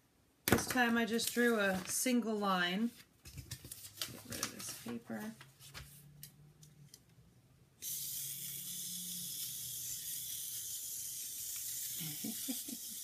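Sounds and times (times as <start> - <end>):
toy electric motors whirring: 7.8 - 13.0.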